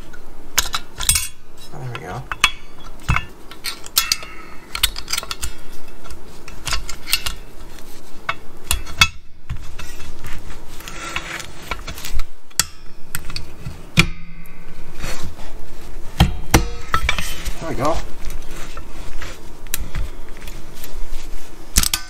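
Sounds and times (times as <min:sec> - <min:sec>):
metal clicking and scraping: 0:00.1 - 0:14.2, 0:21.7 - 0:22.0.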